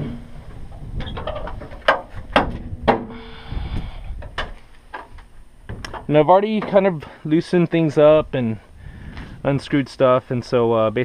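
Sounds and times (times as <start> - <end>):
hood catch clicks and knocks: 1.0 - 3.1, 4.2 - 6.9.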